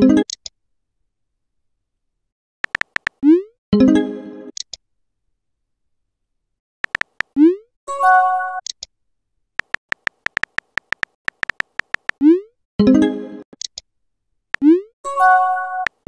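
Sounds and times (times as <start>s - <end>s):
keyboard tap clicks: 2.6s - 3.2s, 6.8s - 7.4s, 9.6s - 12.2s.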